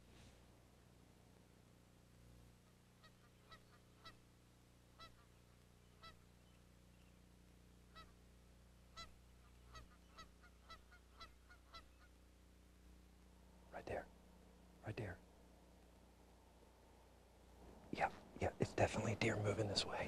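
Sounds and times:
distant geese honking: 0:02.6 - 0:04.3, 0:04.9 - 0:07.0, 0:07.8 - 0:12.3.

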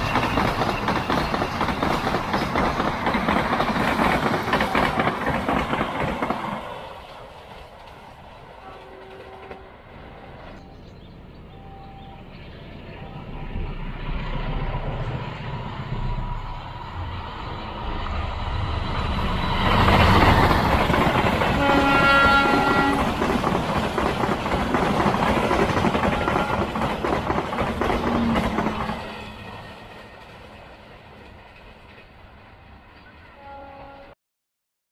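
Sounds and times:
train wheels rumbling and clattering: 0:00.0 - 0:11.5, 0:12.4 - 0:33.3
train horn blast: 0:08.6 - 0:10.2, 0:21.5 - 0:23.2, 0:26.0 - 0:26.9, 0:33.4 - 0:34.2.

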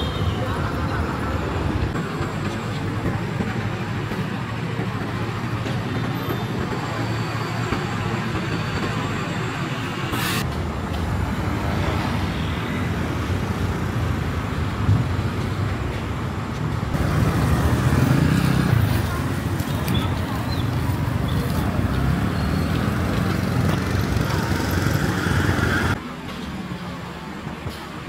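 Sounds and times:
passing motor vehicles: 0:10.4 - 0:26.2.

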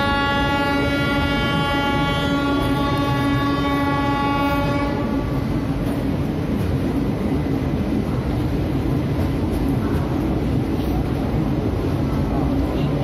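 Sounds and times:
locomotive horn: 0:00.0 - 0:05.4
train coach rumbling and rattling: 0:00.0 - 0:13.0.

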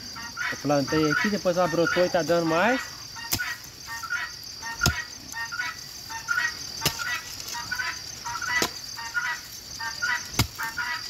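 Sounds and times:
high insect buzz: 0:00.0 - 0:11.0
garden tool striking soil: 0:03.2 - 0:03.6, 0:04.7 - 0:05.4, 0:06.8 - 0:07.6, 0:08.4 - 0:08.9, 0:10.1 - 0:10.8.

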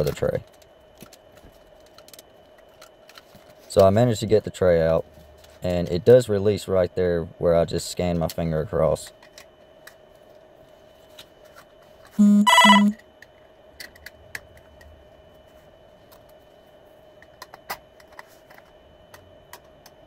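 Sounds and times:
phone ringing electronic tones: 0:12.2 - 0:13.0.

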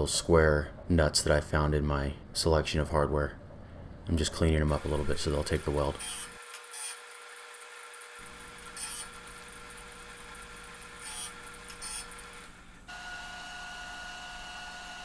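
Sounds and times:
disc sander running: 0:04.7 - 0:15.0.

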